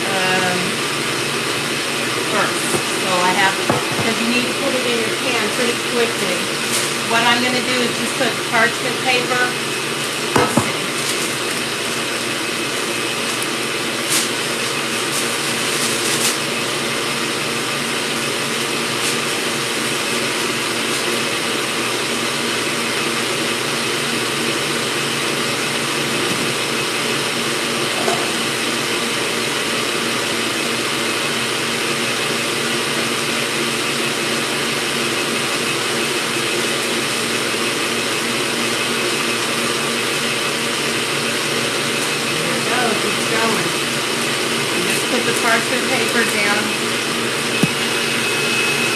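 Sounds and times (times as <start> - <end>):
stand mixer whipping: 0.0 - 48.9
parchment paper crinkling: 10.7 - 11.6, 14.0 - 16.5.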